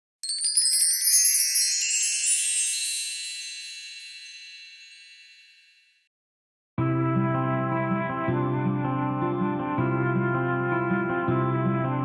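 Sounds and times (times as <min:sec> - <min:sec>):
tinkling chime notes: 0:00.2 - 0:06.1.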